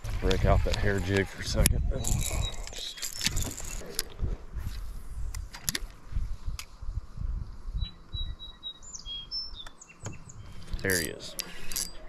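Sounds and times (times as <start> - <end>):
bird chirping: 1.1 - 4.0, 7.7 - 12.0
fishing reel clicks and knocks: 11.3 - 12.0.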